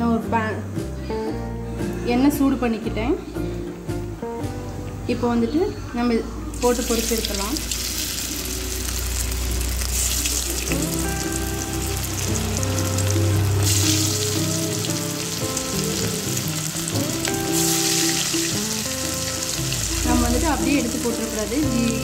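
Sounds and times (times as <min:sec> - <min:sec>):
background music with held notes: 0:00.0 - 0:22.0
chicken deep-frying in oil: 0:06.5 - 0:22.0.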